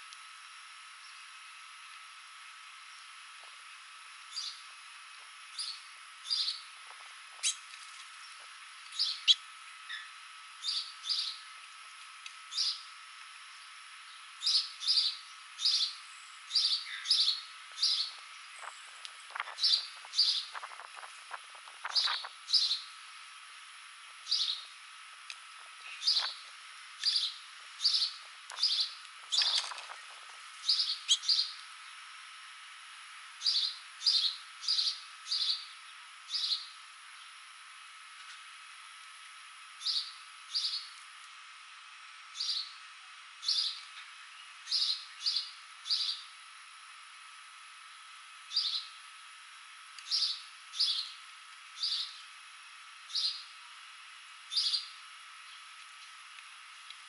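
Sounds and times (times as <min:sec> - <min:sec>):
finches chirping: 0:04.3 - 0:04.6, 0:05.5 - 0:06.7, 0:07.4 - 0:11.4, 0:12.5 - 0:12.9, 0:13.5 - 0:20.8, 0:21.9 - 0:22.9, 0:24.2 - 0:24.7, 0:25.9 - 0:26.4, 0:27.0 - 0:31.6, 0:33.4 - 0:37.3, 0:39.8 - 0:40.9, 0:42.4 - 0:42.8, 0:43.4 - 0:46.3, 0:48.5 - 0:49.0, 0:50.0 - 0:51.2, 0:51.8 - 0:52.2, 0:53.1 - 0:53.5, 0:54.5 - 0:55.6.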